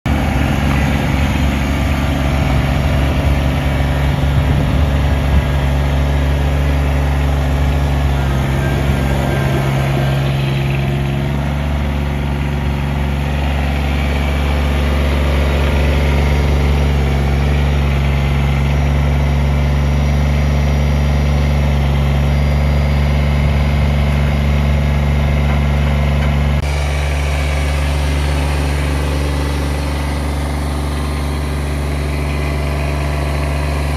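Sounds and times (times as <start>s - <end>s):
tractor diesel engine running: 0.0s - 33.9s
tyres on gravel: 0.1s - 20.2s.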